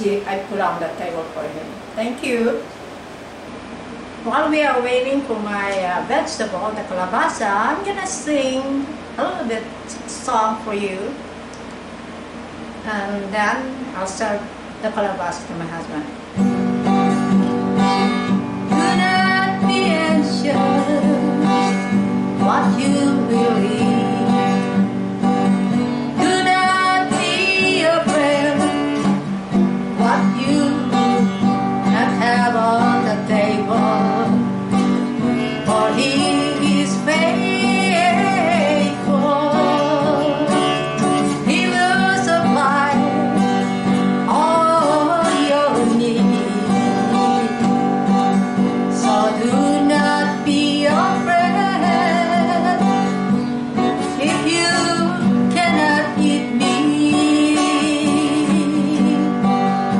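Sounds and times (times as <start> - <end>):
acoustic guitar: 0.0 - 59.9
woman singing worship song: 18.7 - 24.7, 26.2 - 29.2, 30.0 - 31.3, 31.9 - 34.5, 35.5 - 43.6, 44.2 - 47.8, 48.8 - 53.1, 54.0 - 59.6.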